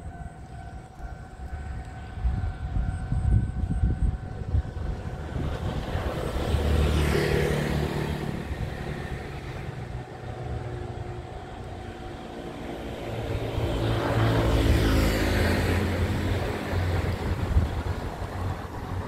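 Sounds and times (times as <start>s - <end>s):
vehicles passing: 0.0s - 19.0s.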